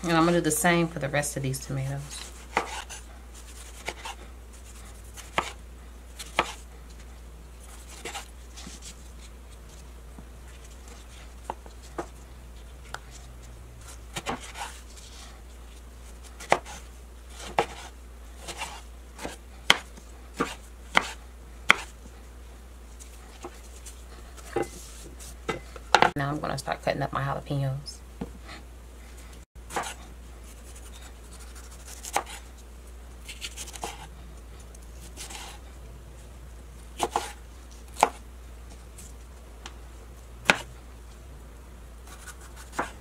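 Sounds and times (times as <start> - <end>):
knife chopping on wooden board: 2.5 - 3.0, 5.2 - 5.6, 6.2 - 6.6, 14.2 - 14.8, 16.4 - 16.8, 17.4 - 21.9, 29.7 - 30.0, 31.9 - 32.4, 37.0 - 37.4, 38.0 - 38.2, 40.4 - 40.7, 42.2 - 43.0.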